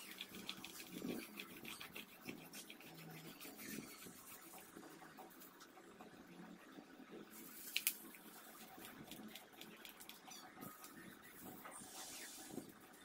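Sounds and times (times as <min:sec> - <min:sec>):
oil pastel scribbling on paper: 0:00.0 - 0:05.5.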